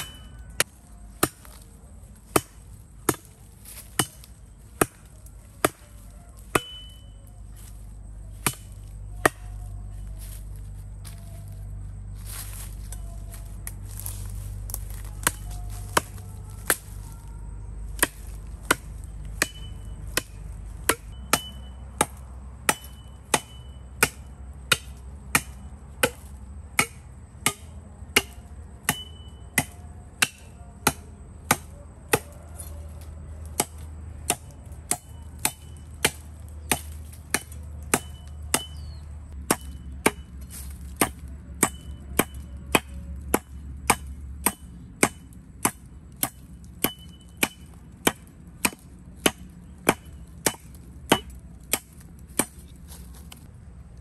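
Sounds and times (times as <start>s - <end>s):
firewood chopping strikes: 0.0s - 10.4s, 12.3s - 17.1s, 18.0s - 53.5s
low steady rumble: 0.0s - 54.0s.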